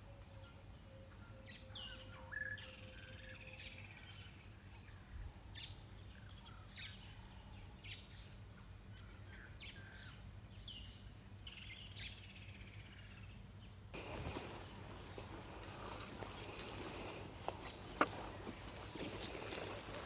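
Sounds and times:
birds chirping: 0.0s - 20.0s
steady low hum: 2.9s - 20.0s
even hiss of noise: 13.9s - 20.0s.

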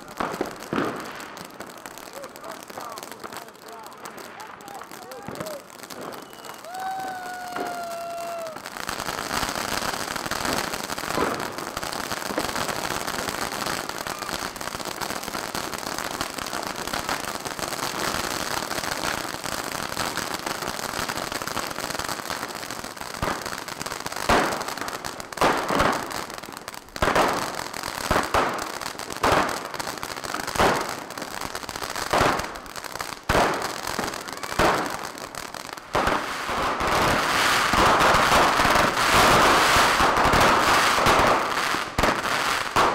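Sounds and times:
sharp firework bangs: 0.0s - 1.3s, 10.0s - 11.6s, 24.2s - 26.1s, 33.2s - 35.1s, 35.9s - 42.9s
fireworks fountain fizzing crackle: 0.0s - 42.9s.

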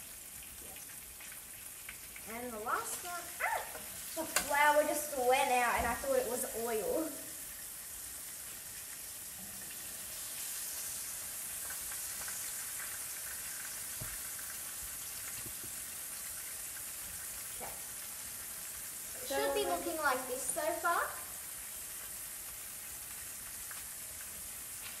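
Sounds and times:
fish sizzling in hot oil: 0.0s - 25.0s.

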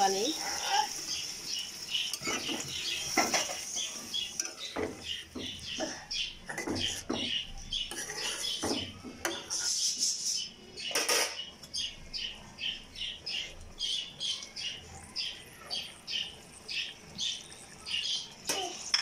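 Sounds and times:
bird chirping: 1.1s - 18.4s
metal spatula scraping a pan: 2.0s - 5.2s, 7.7s - 11.5s.

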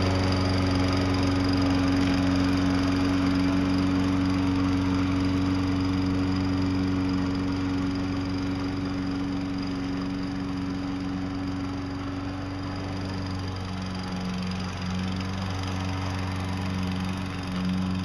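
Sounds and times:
lawn mower engine running: 0.0s - 18.0s.

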